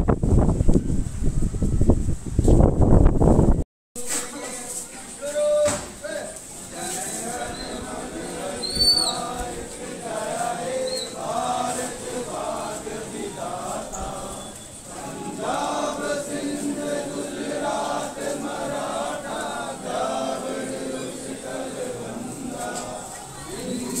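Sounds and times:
crowd singing: 6.5 - 24.0.

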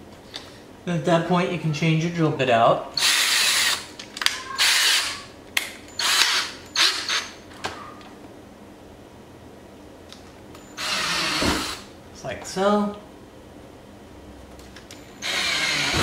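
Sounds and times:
drill chuck ratcheting: 3.0 - 3.8, 6.0 - 7.3, 15.2 - 16.0
cordless drill whirring: 3.0 - 3.9, 4.6 - 5.2, 6.0 - 7.4, 10.8 - 11.9, 15.2 - 16.0.

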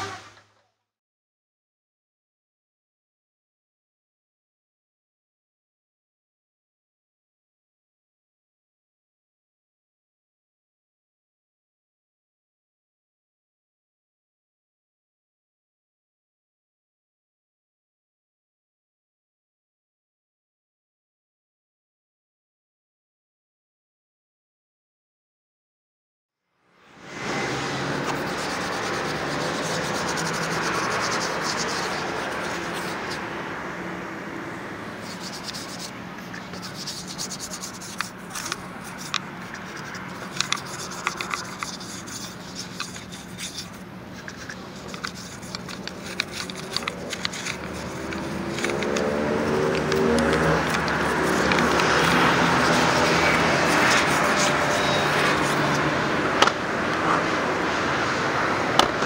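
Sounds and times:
low traffic drone: 26.8 - 59.0
brush scrubbing tyre: 27.0 - 33.3, 34.9 - 56.3.

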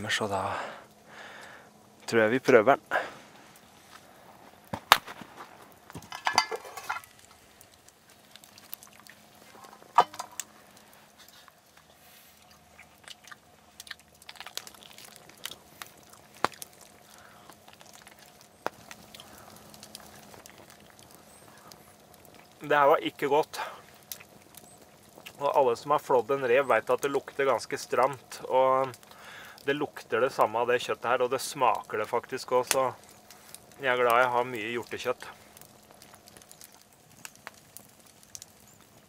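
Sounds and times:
biting and chewing: 4.6 - 22.6, 23.9 - 25.4.

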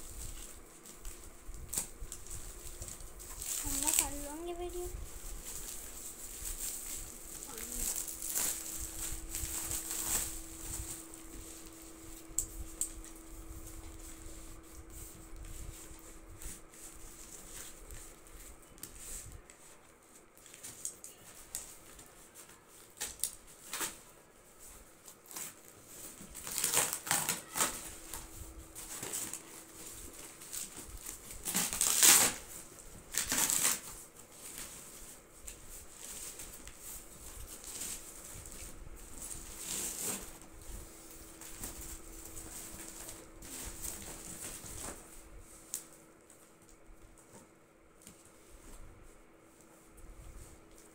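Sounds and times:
plastic wrapping rustling: 0.0 - 50.9
cardboard tearing: 26.2 - 28.2, 30.4 - 34.9, 39.2 - 40.5.

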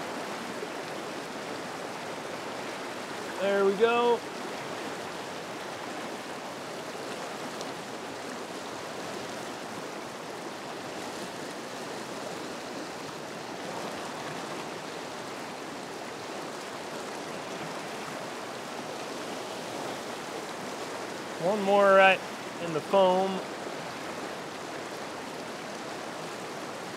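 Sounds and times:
river rushing over rocks: 0.0 - 26.9.

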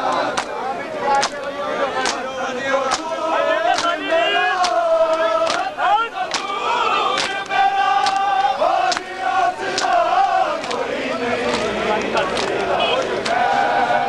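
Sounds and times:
men chanting a lament: 0.0 - 14.0
unison chest-beating slaps: 0.1 - 13.5.

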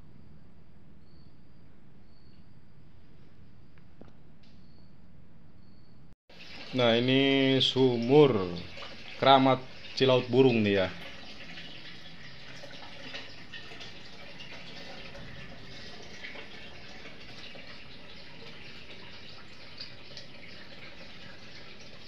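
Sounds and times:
faint drips: 6.3 - 22.0
water running into stone basin: 6.3 - 22.0.

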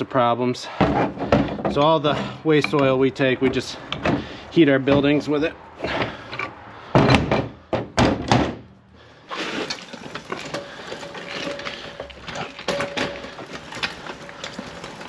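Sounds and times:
wrenches clanking on metal pipe: 0.8 - 4.3, 9.6 - 15.0
rattles and clicks: 9.6 - 15.0.

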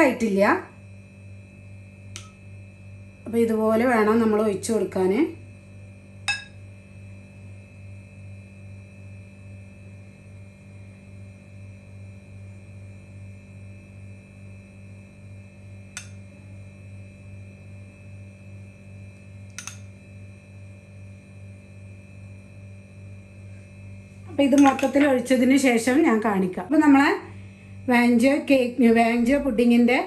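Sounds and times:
low electrical hum: 0.0 - 30.0
metal spoon clicking on glass: 2.2 - 2.4, 6.3 - 6.6, 16.0 - 16.2, 19.5 - 19.9.

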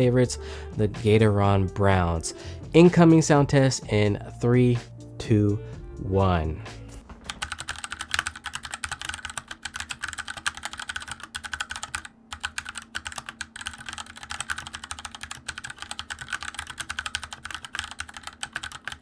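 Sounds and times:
mechanical keyboard typing: 7.2 - 19.0.

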